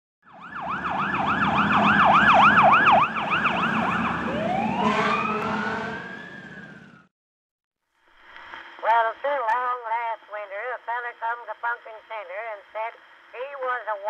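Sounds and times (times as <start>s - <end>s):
siren yelping and wailing: 0.2s - 7.1s.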